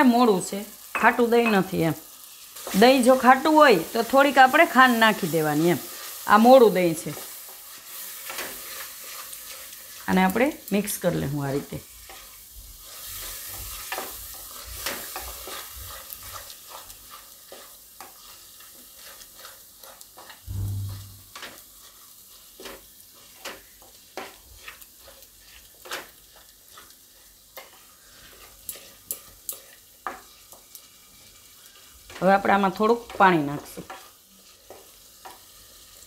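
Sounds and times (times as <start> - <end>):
faint sizzle: 0.0 - 36.0
spatula scraping pan: 2.3 - 10.0, 11.6 - 30.8
low bump: 20.5 - 21.3.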